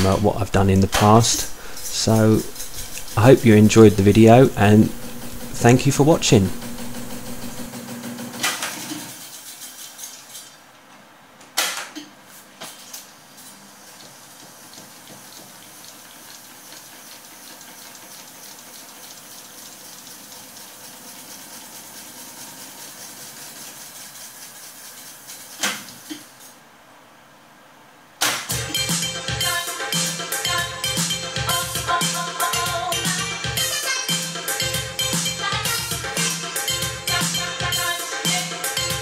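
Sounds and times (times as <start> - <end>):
tape deck fast-winding whir: 0.0 - 9.6.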